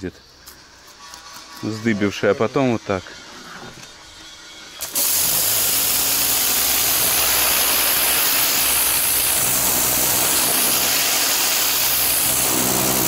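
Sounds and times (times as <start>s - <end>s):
motor and pump hum: 0.6s - 13.0s
pressure washer water jet hiss: 4.8s - 13.0s.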